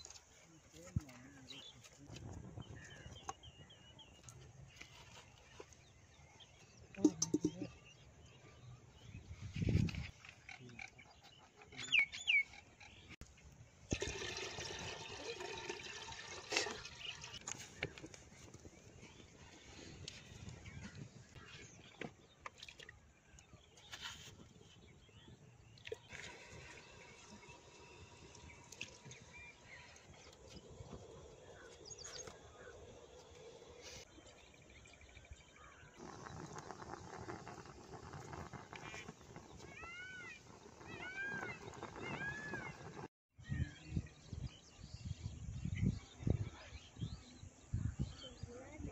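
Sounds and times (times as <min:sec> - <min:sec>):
water pouring into metal pot: 0:13.9 - 0:17.6, 0:25.8 - 0:29.2, 0:36.0 - 0:43.1.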